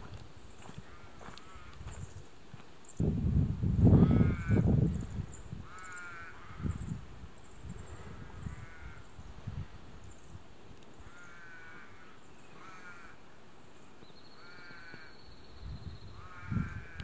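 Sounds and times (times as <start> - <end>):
bird giving harsh calls: 5.6 - 6.8.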